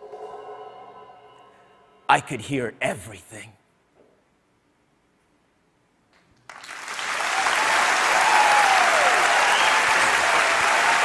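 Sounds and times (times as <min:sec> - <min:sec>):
audience clapping: 0:06.2 - 0:11.0
cheers and whoops: 0:07.2 - 0:11.0.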